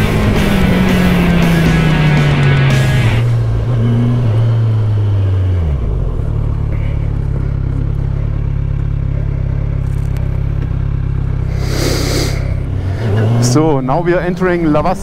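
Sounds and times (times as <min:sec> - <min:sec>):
motorcycle engine running: 0:00.0 - 0:15.0
brief rush of noise: 0:11.5 - 0:12.6.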